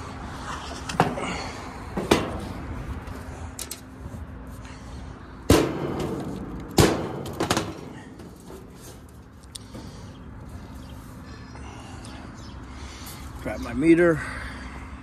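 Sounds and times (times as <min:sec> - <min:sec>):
sheet metal panel knocks and clanks: 0:05.5 - 0:08.6.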